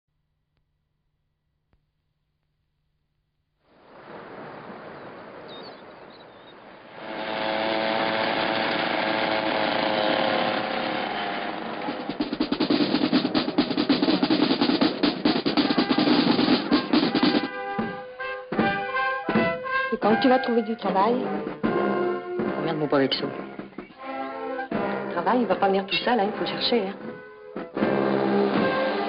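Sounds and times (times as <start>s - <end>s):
road and wind noise: 3.6s - 15.0s
motorcycle engine running: 6.9s - 17.4s
snare drum roll: 7.0s - 19.7s, 27.7s - 29.0s.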